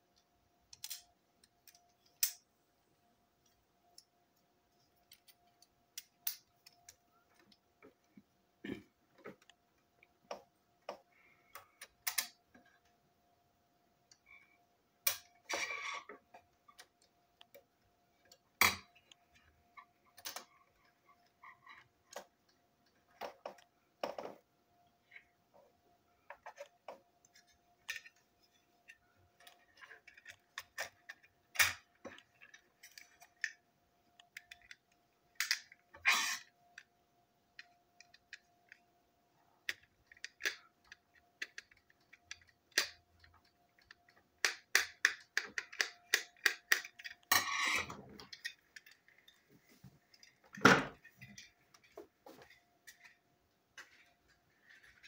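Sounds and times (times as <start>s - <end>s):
small plastic parts clicking: 0.1s - 2.5s, 4.9s - 8.1s, 9.2s - 13.0s, 15.0s - 24.2s, 26.3s - 38.9s, 39.6s - 51.9s.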